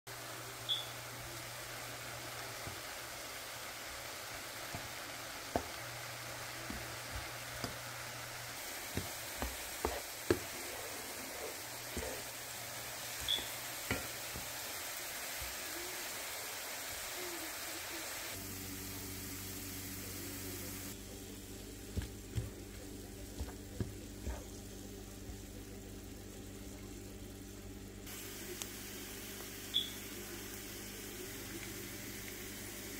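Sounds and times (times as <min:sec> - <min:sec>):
vegetables sizzling in a pan: 0:00.1 - 0:32.9
spoon stirring and knocking pan: 0:03.9 - 0:07.9, 0:08.6 - 0:15.7, 0:21.9 - 0:24.6
steady low hum: 0:18.4 - 0:29.5.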